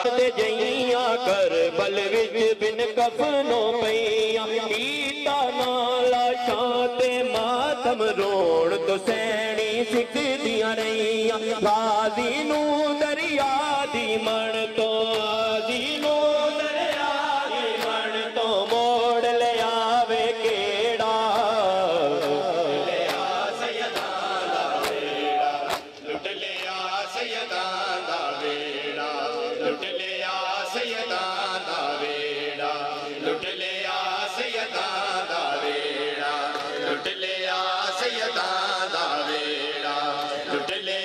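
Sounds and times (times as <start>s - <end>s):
voices chanting a lament: 0.0s - 41.0s
hands slapping bare chests: 22.1s - 26.8s.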